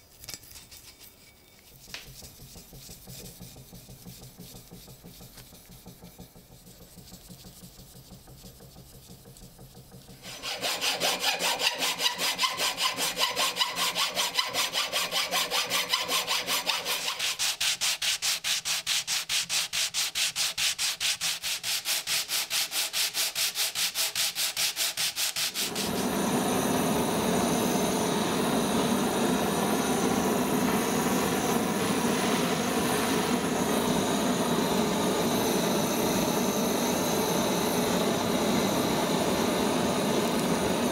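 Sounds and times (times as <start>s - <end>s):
wood rubbed on sandpaper: 0.5s - 9.6s, 10.2s - 26.2s
butane torch hissing: 25.3s - 40.9s.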